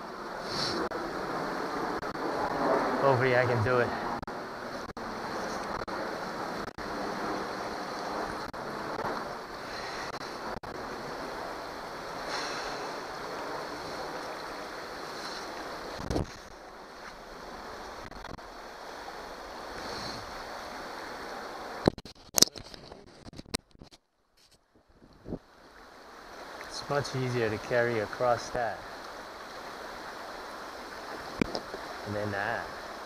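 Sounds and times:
water rushing over rocks: 0:00.0 - 0:23.6, 0:25.1 - 0:33.0.

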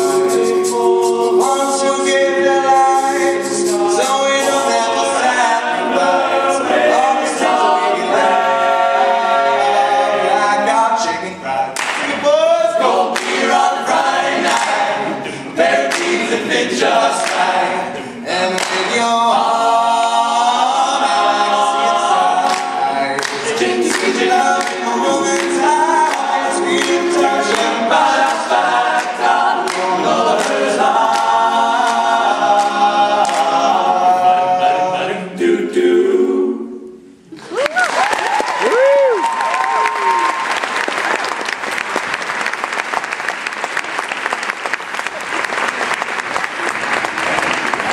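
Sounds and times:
close-harmony backing vocals: 0:00.0 - 0:37.4.

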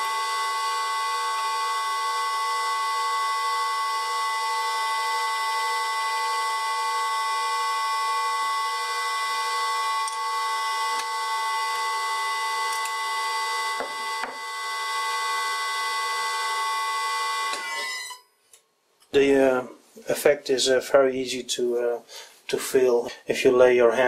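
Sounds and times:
electric motor whine: 0:00.0 - 0:18.2.

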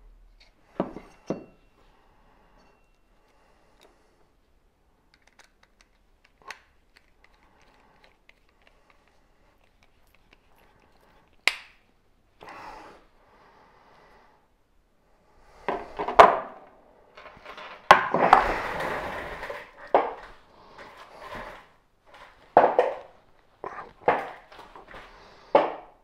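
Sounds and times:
scraping and rummaging tools: 0:00.4 - 0:04.0, 0:17.1 - 0:25.8.

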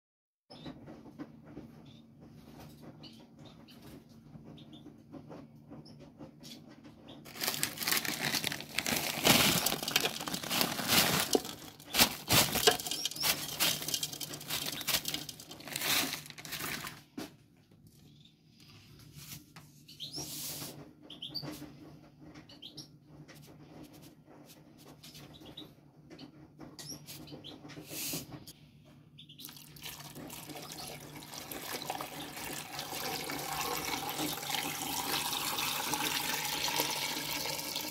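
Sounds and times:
water poured into pot: 0:07.4 - 0:16.9, 0:29.5 - 0:37.9
ingredients knocking in metal pot: 0:08.0 - 0:15.8.

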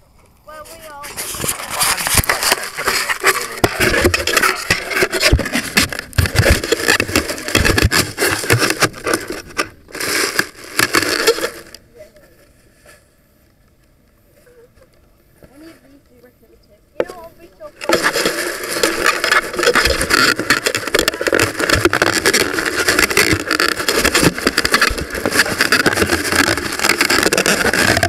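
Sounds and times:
camera scraping and knocking in box: 0:01.0 - 0:11.8, 0:17.0 - 0:28.0.

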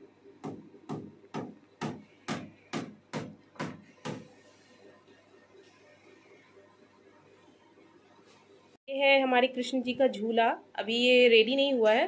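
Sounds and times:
hammer striking: 0:00.4 - 0:04.4.

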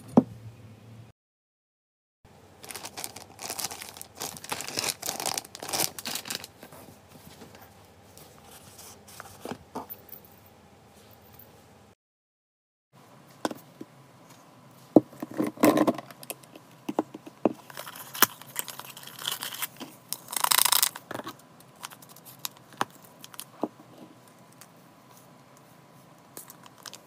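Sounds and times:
foil sachet tearing: 0:02.6 - 0:06.6, 0:17.7 - 0:21.1, 0:21.8 - 0:23.5.

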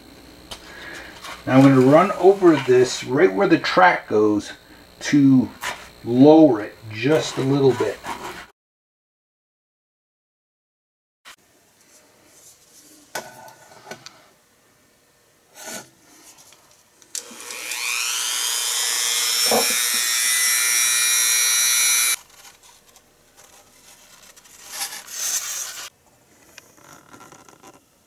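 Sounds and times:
rotary tool motor whine: 0:00.0 - 0:08.5, 0:17.2 - 0:22.6.

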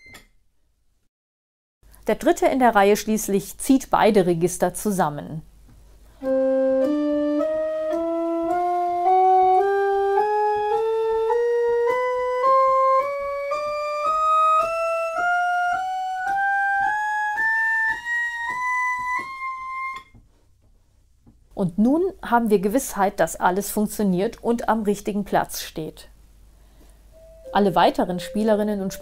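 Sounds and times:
pipe organ playing a scale: 0:06.2 - 0:20.0, 0:27.2 - 0:29.0.

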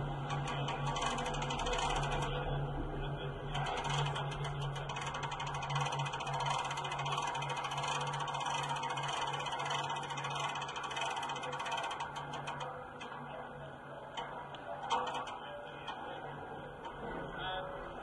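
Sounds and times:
small engine idling: 0:00.0 - 0:13.5
rapid mechanical ticking: 0:00.0 - 0:18.0.

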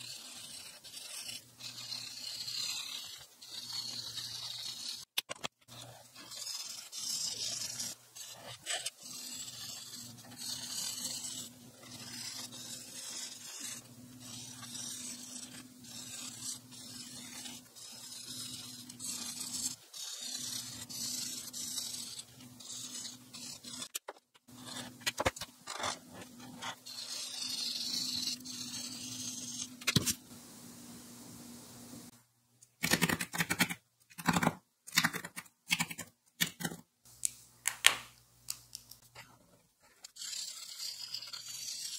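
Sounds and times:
marker scratching on paper: 0:00.0 - 0:05.1, 0:05.7 - 0:30.0, 0:39.8 - 0:41.9.

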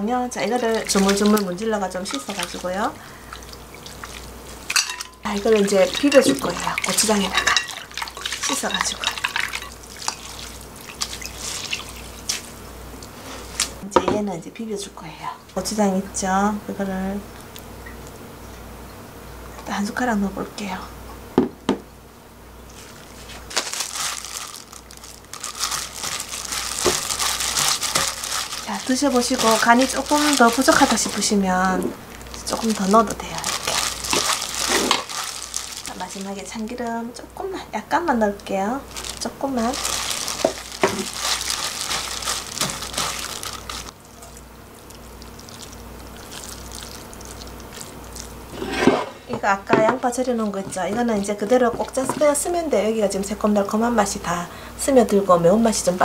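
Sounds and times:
plastic glove crinkling: 0:00.2 - 0:13.8, 0:22.7 - 0:37.1, 0:38.0 - 0:48.5, 0:50.0 - 0:54.2
noodles squelching in wet sauce: 0:00.4 - 0:13.8, 0:22.8 - 0:36.8, 0:38.8 - 0:48.5, 0:50.2 - 0:52.8.

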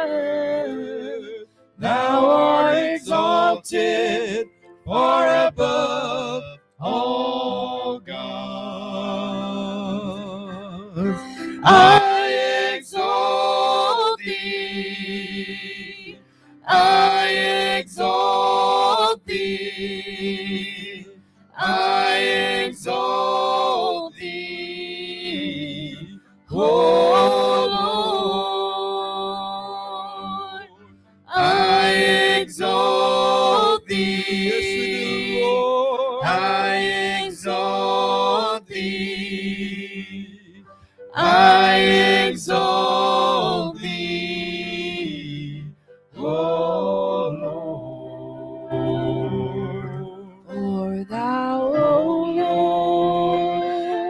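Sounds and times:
man and woman singing: 0:00.0 - 0:16.1, 0:16.7 - 0:30.6, 0:31.3 - 0:40.3, 0:41.2 - 0:54.0
sustained keyboard chords: 0:09.4 - 0:12.7, 0:46.2 - 0:53.5.

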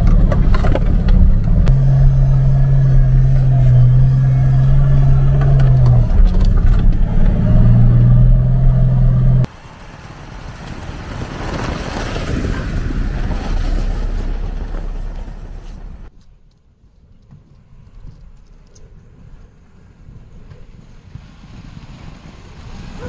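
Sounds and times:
car engine droning: 0:00.0 - 0:11.4, 0:12.4 - 0:16.1
vehicle driving through deep snow: 0:00.0 - 0:16.1, 0:18.9 - 0:23.0.

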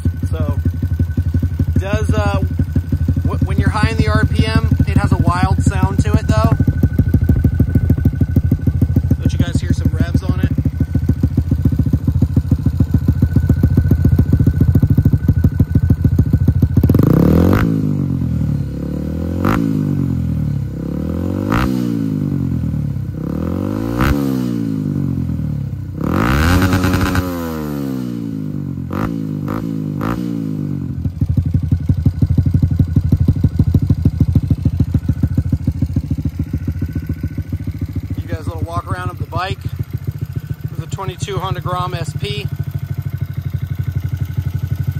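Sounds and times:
motorcycle engine idling and revving: 0:00.0 - 0:44.9
exhaust cracks: 0:01.8 - 0:18.4, 0:31.0 - 0:43.2.

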